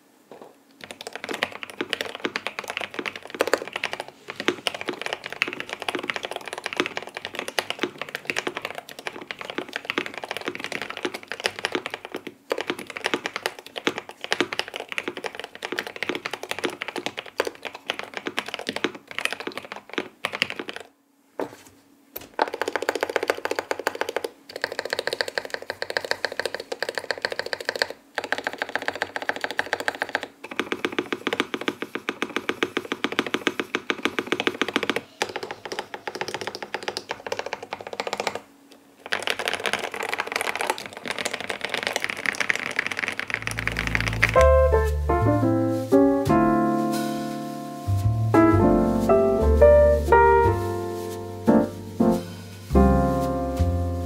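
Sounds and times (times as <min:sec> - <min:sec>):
fast typing on mechanical keyboard: 0:00.8 - 0:21.0, 0:22.3 - 0:44.9.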